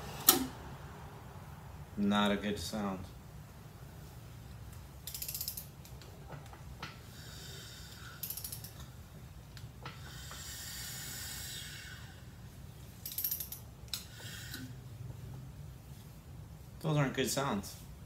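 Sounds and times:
ratchet clicking: 5.0 - 6.1, 7.8 - 8.9, 13.0 - 14.6.

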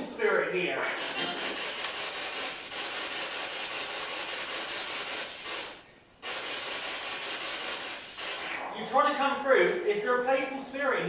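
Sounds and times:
radio static hiss: 6.4 - 8.8.

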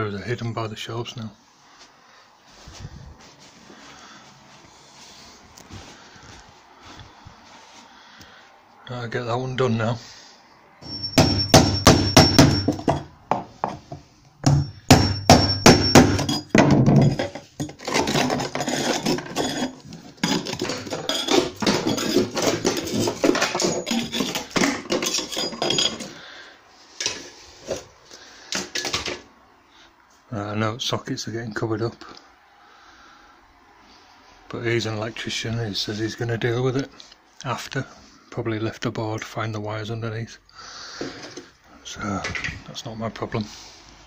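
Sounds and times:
thin high ring: 10.8 - 12.9
hammer blows: 10.8 - 13.8, 14.4 - 17.2.

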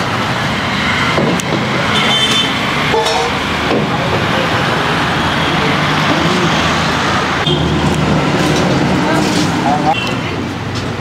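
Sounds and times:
busy street traffic: 0.0 - 11.0.

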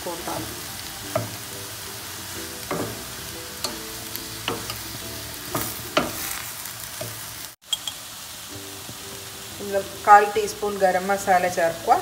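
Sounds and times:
food sizzling: 0.0 - 12.0
spatula scraping frying pan: 2.6 - 7.3.

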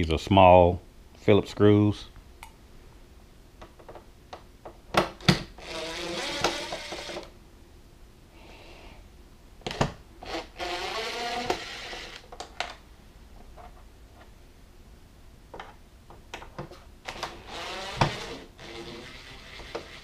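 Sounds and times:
cordless driver motor whine: 17.1 - 20.0.

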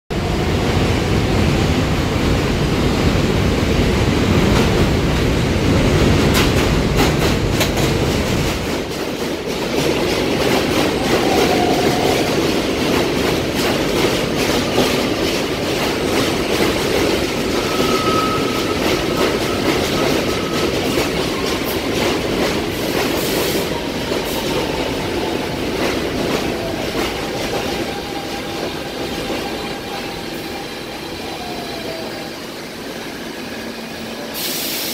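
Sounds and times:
subway train rumbling: 0.1 - 34.9
wheel squeals: 17.5 - 21.8.

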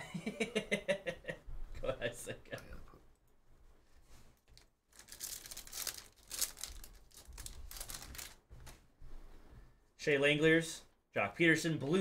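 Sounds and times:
foil wrapper crinkling and tearing: 4.6 - 8.4.

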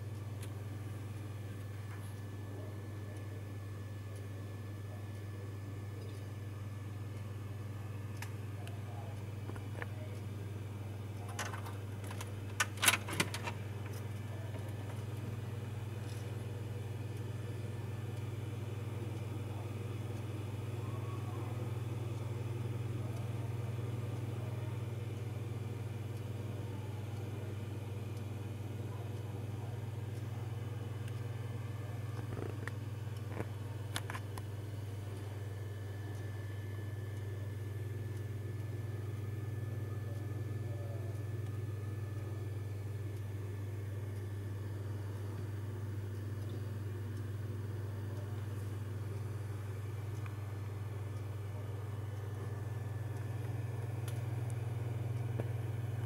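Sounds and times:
computer fans humming: 0.0 - 56.0
key rattle and lock clicks: 11.4 - 13.6.

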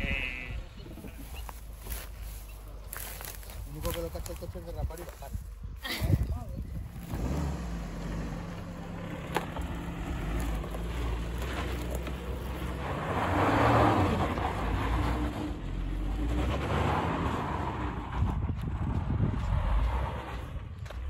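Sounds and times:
car engine climbing a slope: 6.6 - 21.0.

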